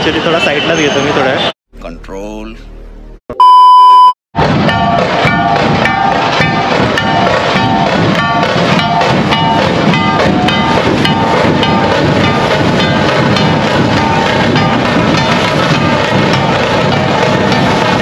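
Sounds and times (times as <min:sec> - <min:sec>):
drums beating steady rhythm: 0:04.4 - 0:18.0.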